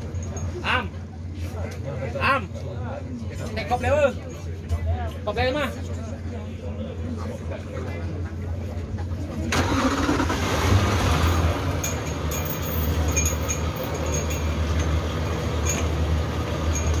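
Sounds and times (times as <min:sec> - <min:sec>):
outboard motors idling: 0:09.1 - 0:17.0.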